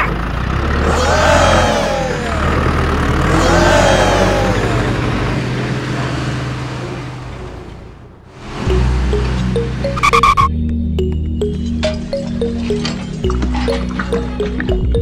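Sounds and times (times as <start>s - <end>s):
tractor engine revving: 0.0s - 10.5s.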